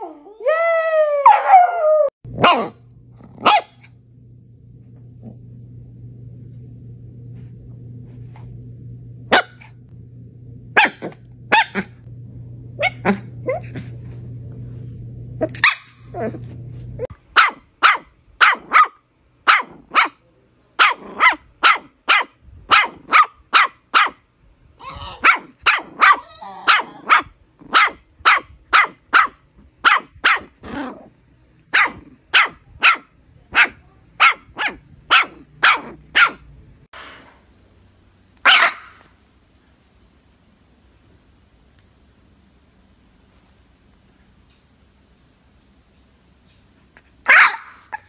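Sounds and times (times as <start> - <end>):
puppies barking: 25.2 - 30.5, 38.4 - 39.1, 47.3 - 48.0.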